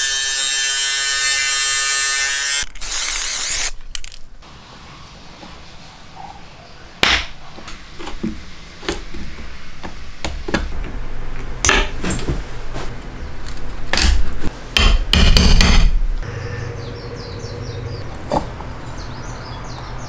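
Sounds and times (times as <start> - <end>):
chisel striking wood: 14.8 - 15.9.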